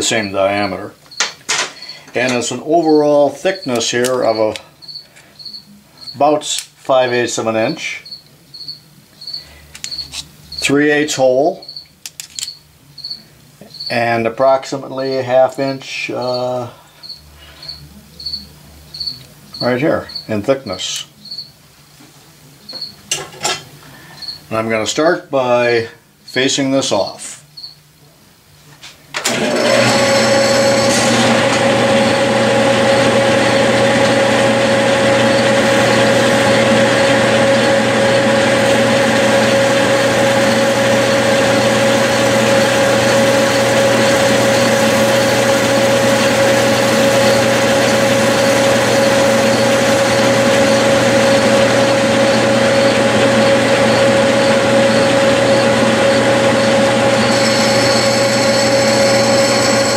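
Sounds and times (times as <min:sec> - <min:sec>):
drive whine: 0:00.0 - 0:21.7, 0:29.1 - 0:59.9
metal lathe running: 0:29.2 - 0:59.9.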